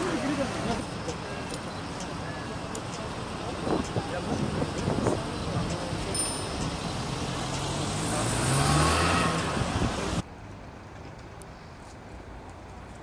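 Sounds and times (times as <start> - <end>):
street traffic noise: 0.0 - 13.0
car driving past: 6.9 - 10.2.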